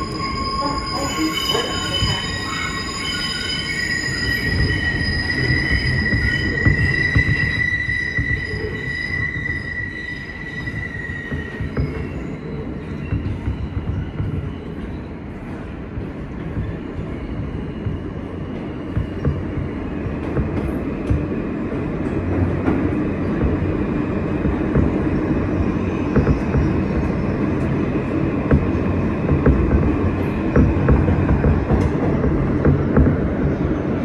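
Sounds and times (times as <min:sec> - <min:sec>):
high-pitched train squeal: 0:00.0 - 0:21.1
train wheels rumbling on track: 0:00.0 - 0:34.0.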